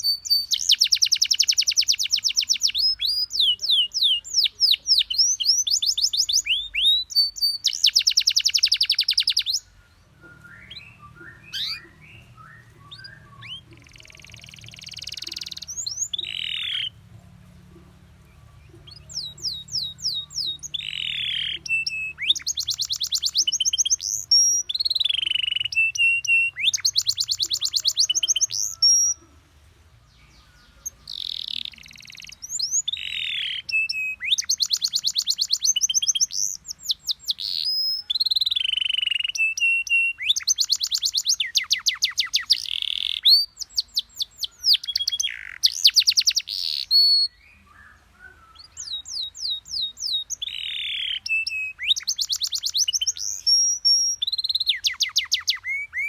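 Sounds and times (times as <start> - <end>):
canary singing: 0.0 - 56.0.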